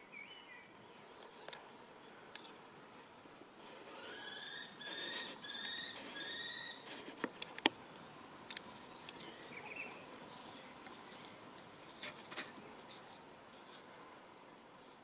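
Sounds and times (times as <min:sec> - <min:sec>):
kestrel calls: 0:03.9 - 0:07.0.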